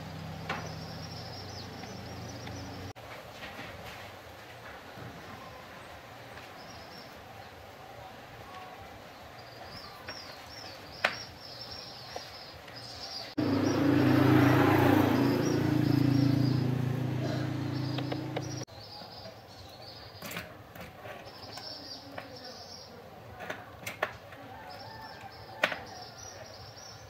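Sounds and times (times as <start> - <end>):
small birds chirping: 0.0 - 3.0, 8.6 - 23.2, 24.5 - 27.0.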